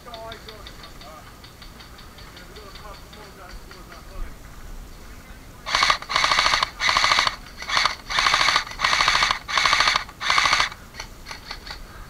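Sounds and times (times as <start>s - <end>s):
airsoft rifle firing bursts: 5.7s - 11.8s.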